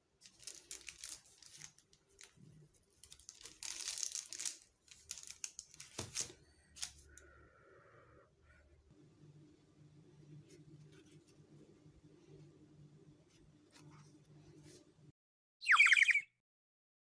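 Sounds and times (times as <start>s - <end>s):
baking paper crinkling: 0.0s - 7.0s.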